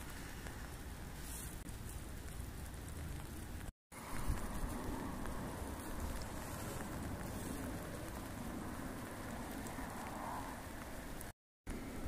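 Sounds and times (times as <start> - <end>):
wind buffeting microphone: 4.0 - 11.3.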